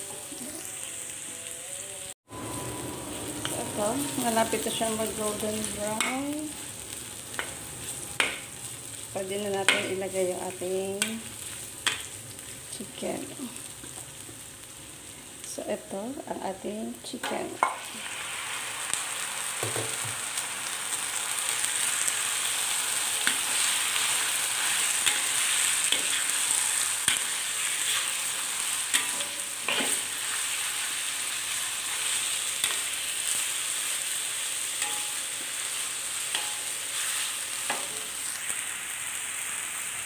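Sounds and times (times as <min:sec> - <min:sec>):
chicken sizzling in hot oil: 0:00.0 - 0:40.0
metal spatula scraping wok: 0:22.7 - 0:33.7.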